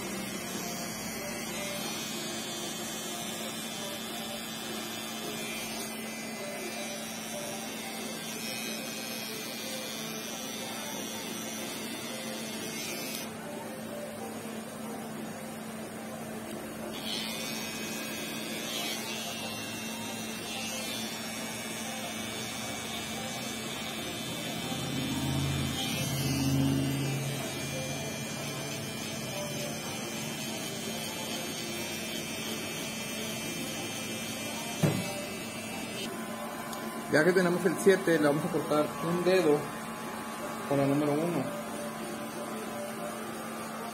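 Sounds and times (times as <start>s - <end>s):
hair trimmer buzzing: 0.0s - 13.3s, 16.9s - 36.1s.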